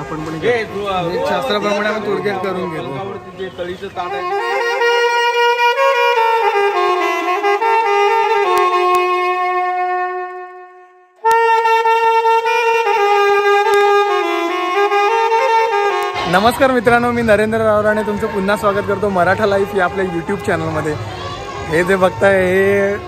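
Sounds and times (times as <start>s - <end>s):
solo saxophone melody: 1.1s - 17.2s.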